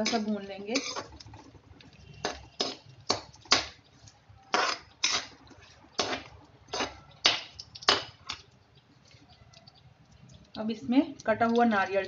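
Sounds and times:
metal spatula scraping pan: 0:00.0 - 0:01.5, 0:02.1 - 0:03.7, 0:04.5 - 0:07.0
nuts frying in oil: 0:00.0 - 0:12.0.

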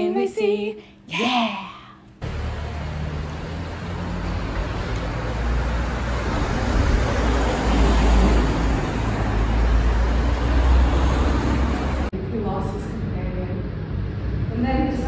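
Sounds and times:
motor vehicle engine rumble: 0:02.2 - 0:12.6
road noise: 0:02.2 - 0:15.0.

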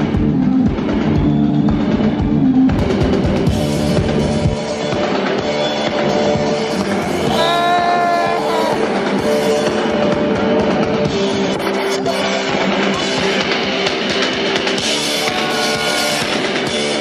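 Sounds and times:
guitar chords: 0:02.8 - 0:17.0
heavy drum beat: 0:06.1 - 0:17.0
live band music: 0:15.0 - 0:17.0.

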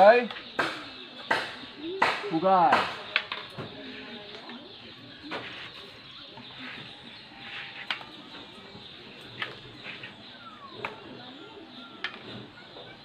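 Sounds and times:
wooden sticks clacking together: 0:00.0 - 0:03.7, 0:07.4 - 0:08.4
dove cooing: 0:06.5 - 0:13.0.

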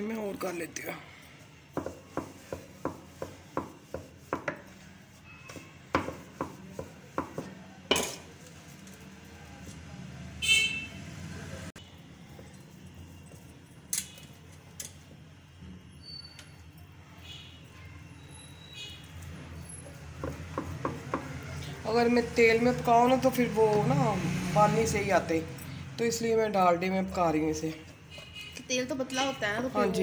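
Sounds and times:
rolling pin knocking on wooden board: 0:01.7 - 0:04.7, 0:05.9 - 0:08.1, 0:20.2 - 0:21.3.

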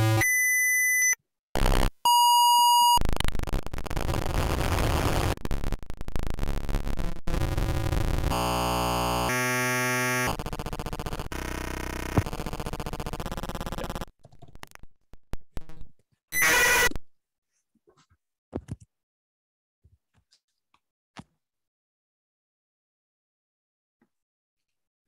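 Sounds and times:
buzzing pitched electronic tones: 0:00.0 - 0:00.2, 0:01.6 - 0:02.0, 0:02.8 - 0:14.1, 0:16.4 - 0:16.9
dense noisy electronic texture: 0:03.0 - 0:14.1.

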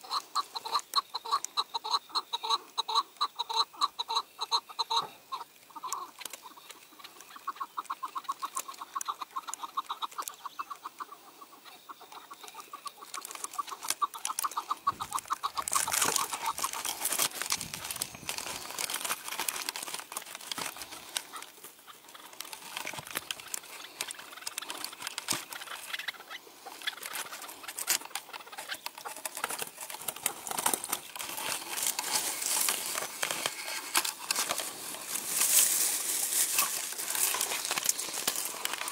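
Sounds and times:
partridge clucking: 0:05.7 - 0:38.9
scratchy rustling and crackling: 0:12.5 - 0:38.9.

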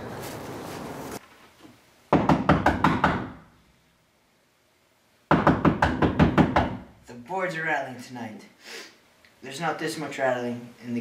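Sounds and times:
rapid knocking on door: 0:02.1 - 0:03.4, 0:05.3 - 0:06.8.

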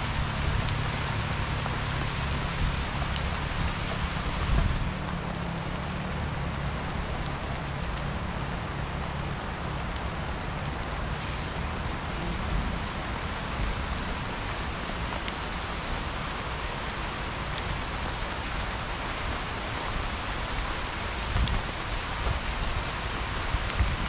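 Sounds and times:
steady hiss: 0:10.9 - 0:21.1.

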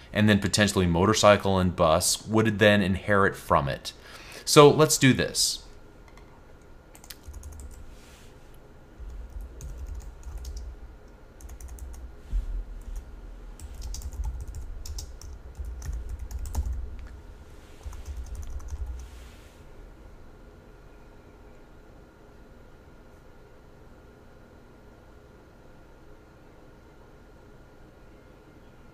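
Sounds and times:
typing on computer keyboard: 0:06.9 - 0:07.8, 0:09.1 - 0:10.7, 0:11.4 - 0:12.0, 0:13.6 - 0:17.1, 0:17.8 - 0:19.0.

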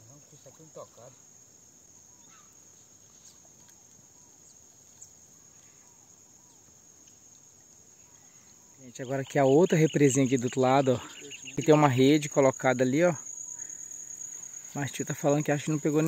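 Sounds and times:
insect chorus drone: 0:00.0 - 0:16.0.

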